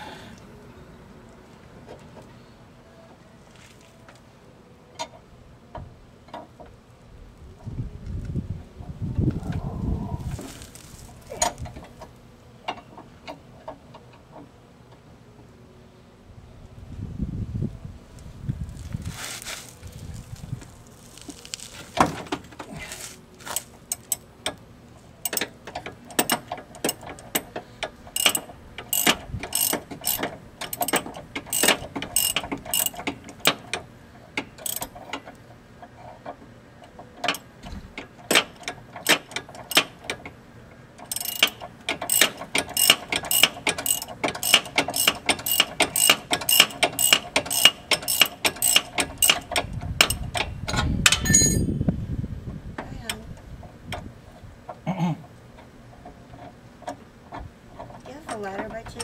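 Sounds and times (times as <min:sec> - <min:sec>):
hand ratchet clicking: 0:25.2 - 0:33.7, 0:34.6 - 0:35.0, 0:41.0 - 0:50.5.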